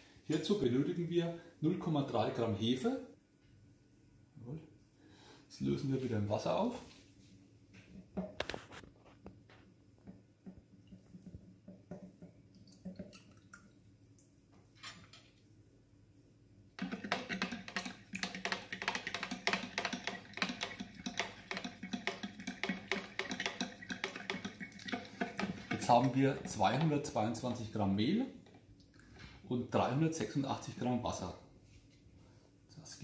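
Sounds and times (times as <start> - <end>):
fork clicking against plastic jug: 16.8 - 26.8.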